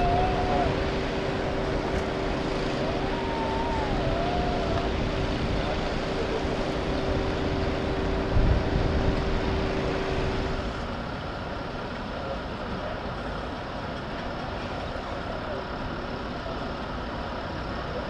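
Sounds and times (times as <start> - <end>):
faint siren wailing: 0.0 - 1.6, 2.7 - 5.8
emergency vehicle engine hum: 0.0 - 18.0.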